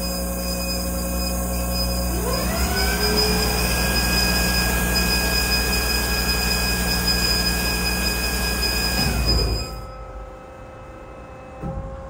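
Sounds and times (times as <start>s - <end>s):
bandsaw whining: 1.9s - 9.9s.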